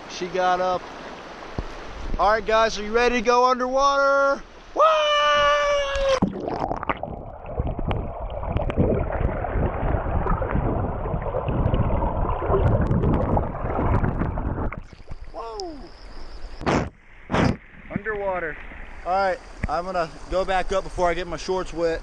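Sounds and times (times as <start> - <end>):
muffled underwater water rush: 0.0 - 3.4, 5.4 - 22.0
small underwater clicks and knocks: 7.6 - 9.0.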